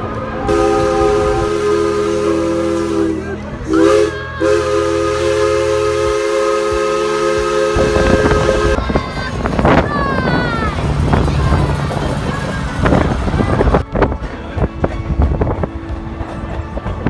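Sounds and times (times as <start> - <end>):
low train rumble: 0.0 - 17.0
steam locomotive whistle: 0.4 - 8.8.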